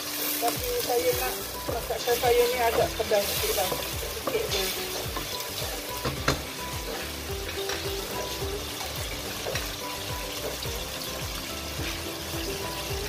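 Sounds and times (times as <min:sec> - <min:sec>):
paste sizzling in oil: 0:00.0 - 0:13.0.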